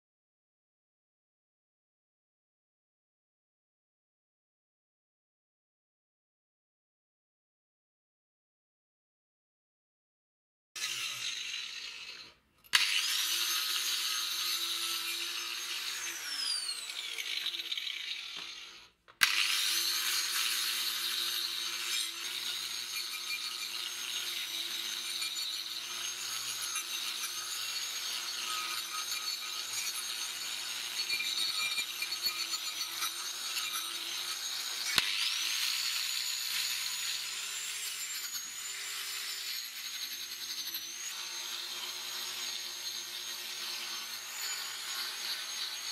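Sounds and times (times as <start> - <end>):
angle grinder motor running: 10.8 - 45.9.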